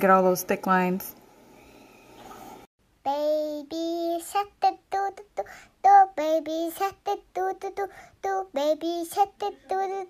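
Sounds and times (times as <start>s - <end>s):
high child-like voice singing: 3.0s - 10.0s.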